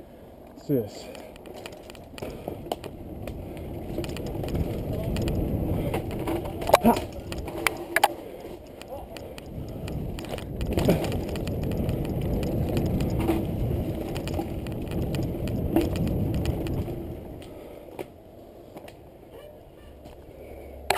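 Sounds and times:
small clicks of bike: 0.4 - 19.0
bike rattles and knocks: 1.1 - 18.1
bike tyres rumbling over dirt: 1.2 - 17.8.

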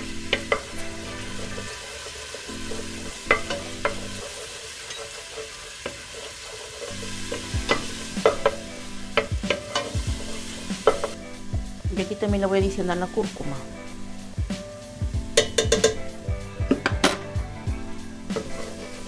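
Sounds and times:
light sizzle of frying: 0.0 - 19.0
spoon knocking against pot: 2.8 - 4.2, 15.3 - 17.4.

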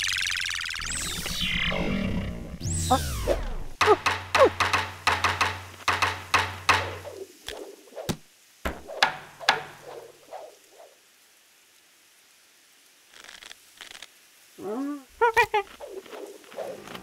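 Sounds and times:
cartoon knocks and taps: 3.8 - 7.1, 8.1 - 9.8.

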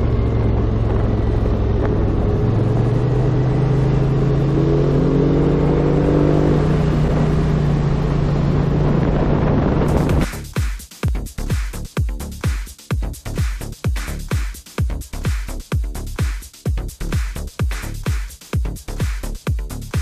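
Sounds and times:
motor scooter engine running: 0.0 - 4.5
electronic dance music: 9.9 - 20.0.

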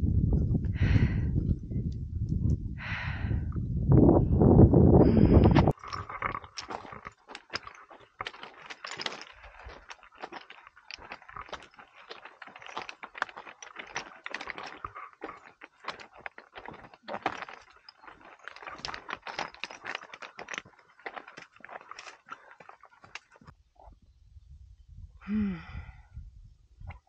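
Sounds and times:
footsteps on rocky trail: 5.1 - 23.5.

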